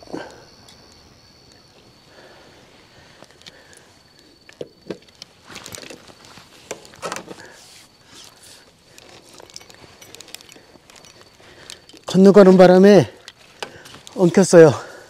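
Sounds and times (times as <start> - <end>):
fishing gear knocks and rustles: 3.2 - 14.6.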